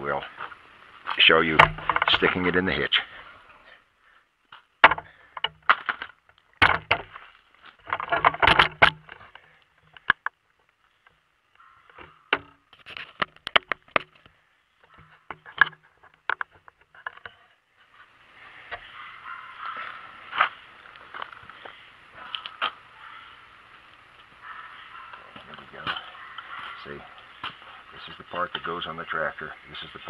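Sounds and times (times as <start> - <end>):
camera handling clicks and knocks: 12.0 - 14.3.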